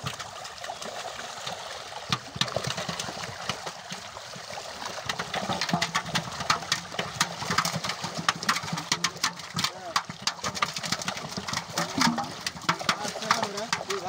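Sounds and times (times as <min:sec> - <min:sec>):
fish thrashing and splashing: 0:00.0 - 0:14.0.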